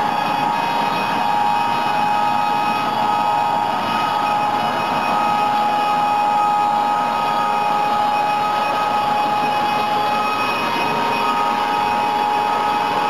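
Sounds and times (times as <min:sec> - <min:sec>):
high saw whine: 0:00.0 - 0:13.0
band saw cutting log: 0:07.4 - 0:13.0.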